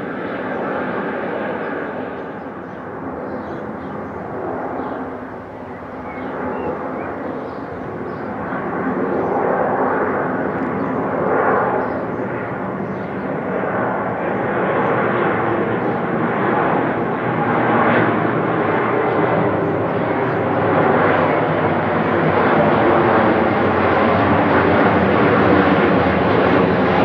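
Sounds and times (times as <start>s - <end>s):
jet airliner passing overhead: 0.0s - 27.0s.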